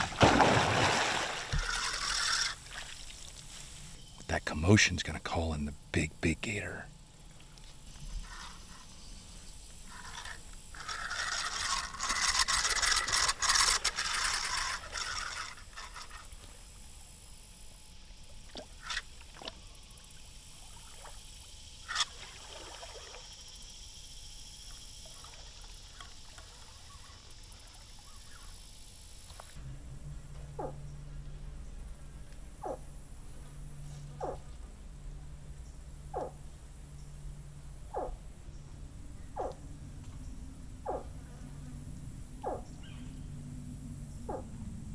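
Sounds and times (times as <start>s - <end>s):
water splashing and churning: 0.0s - 3.8s, 22.0s - 23.4s.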